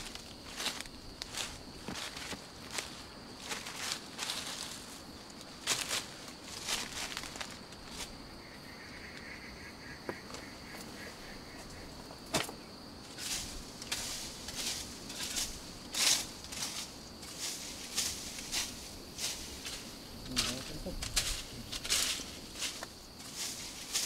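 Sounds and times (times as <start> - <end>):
dry leaves rustling and crunching: 0.0 - 8.2, 13.1 - 24.0
high insect drone: 0.0 - 24.0
pulsing insect or bird trill: 6.7 - 24.0.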